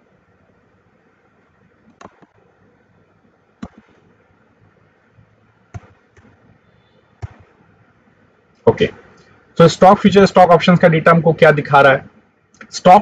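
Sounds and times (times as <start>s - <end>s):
faint room noise: 0.0s - 13.0s
sharp clicks: 1.9s - 2.4s, 3.6s - 4.0s.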